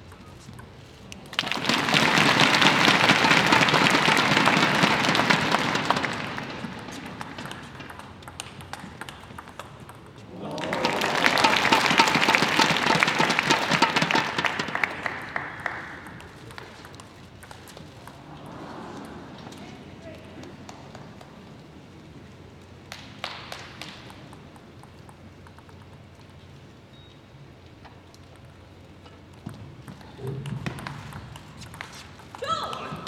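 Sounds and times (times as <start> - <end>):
crowd applauding: 1.2 - 8.2, 10.3 - 16.9.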